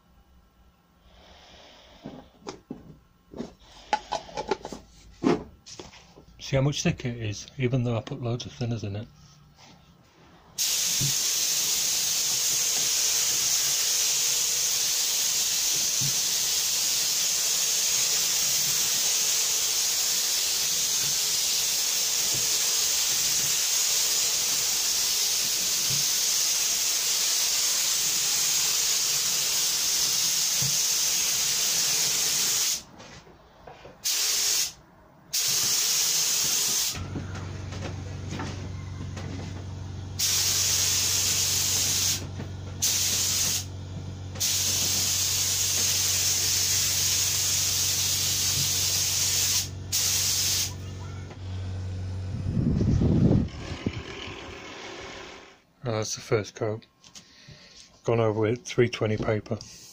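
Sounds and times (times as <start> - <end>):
spray gun hissing: 10.6 - 32.8, 34.0 - 37.0, 40.2 - 43.7, 44.4 - 50.8
low hum: 37.0 - 45.1, 50.7 - 55.5.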